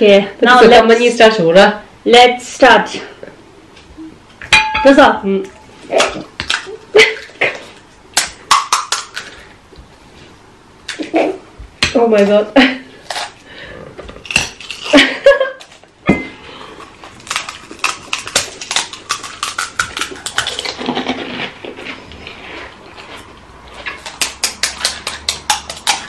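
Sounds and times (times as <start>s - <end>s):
crisp shells crunching: 14.2s - 15.0s, 16.8s - 24.4s.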